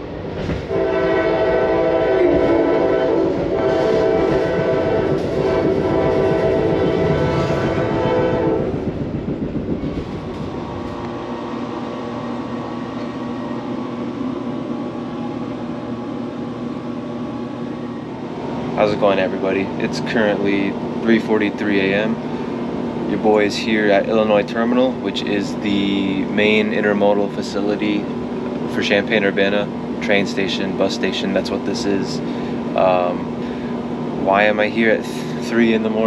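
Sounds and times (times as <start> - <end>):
moving train rumble: 0.0 - 36.0
steady low hum: 0.0 - 36.0
train horn chord: 0.7 - 8.9.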